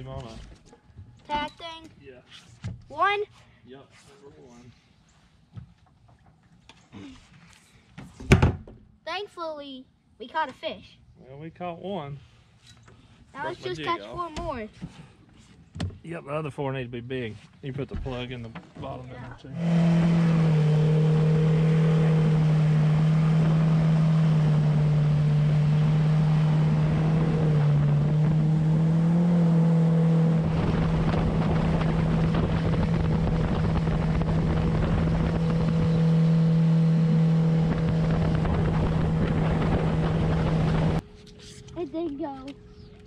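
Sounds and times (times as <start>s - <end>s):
outboard motor running: 19.5s - 41.0s
wind on microphone: 30.1s - 41.0s.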